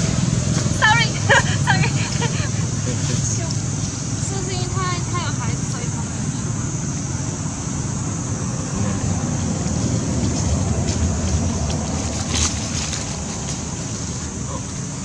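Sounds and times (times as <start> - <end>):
wind rumbling on microphone: 0.0 - 15.0.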